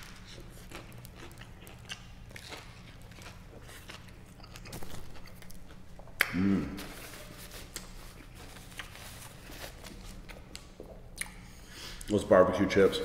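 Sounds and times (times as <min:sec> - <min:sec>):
man chewing with wet smacks: 0:00.0 - 0:06.4, 0:10.0 - 0:12.1
man humming briefly: 0:06.3 - 0:07.0.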